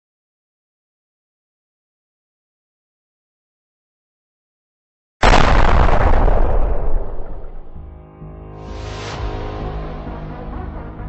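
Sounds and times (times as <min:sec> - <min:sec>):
loud explosion blast: 0:05.2 - 0:08.0.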